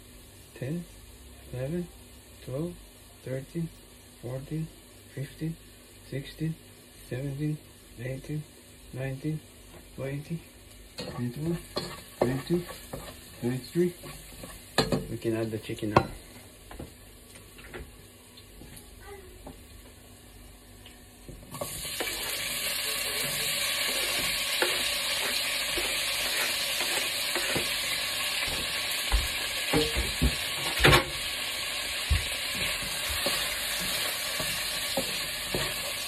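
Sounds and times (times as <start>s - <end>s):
food frying in a pan: 0.0s - 36.0s
loud sizzle: 0.0s - 36.0s
utensil scraping a pan: 11.0s - 14.8s, 23.1s - 28.6s, 32.5s - 36.0s.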